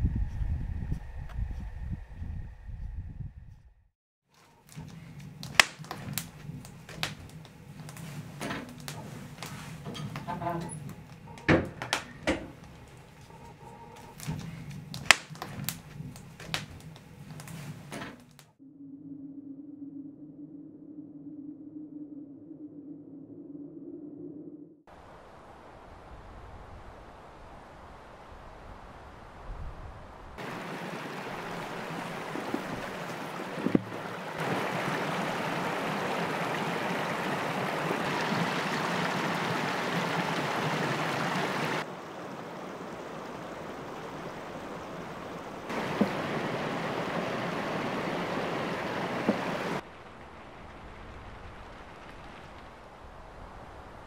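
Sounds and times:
creek running over stones: 0:04.6 - 0:17.5, 0:30.4 - 0:53.4.

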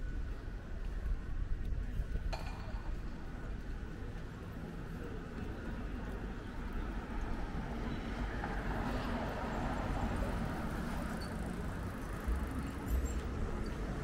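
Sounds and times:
traffic noise: 0:00.0 - 0:14.0.

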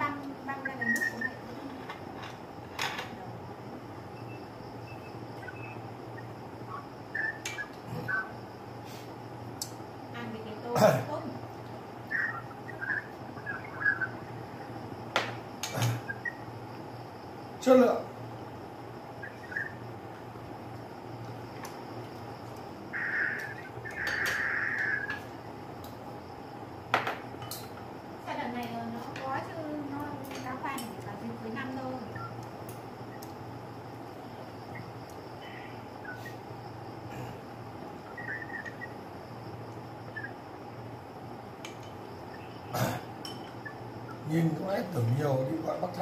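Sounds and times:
steady low hum: 0:00.0 - 0:46.0
tableware clatter: 0:01.7 - 0:03.2, 0:43.2 - 0:43.6
chopsticks and tableware clinking: 0:43.2 - 0:43.6.

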